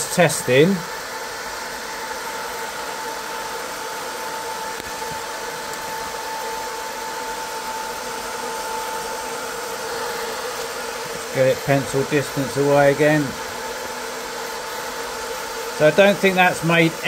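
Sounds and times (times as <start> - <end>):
cooling fan whine: 0.0 - 17.0.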